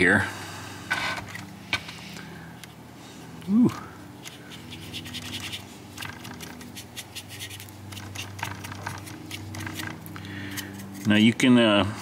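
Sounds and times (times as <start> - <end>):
steady low hum: 0.0 - 12.0
paintbrush scratching on plastic: 4.3 - 11.2.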